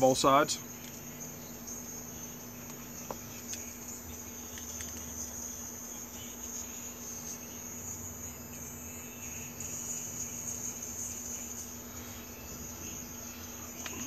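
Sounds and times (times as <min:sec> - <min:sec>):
insect chorus chirring: 0:00.0 - 0:14.0.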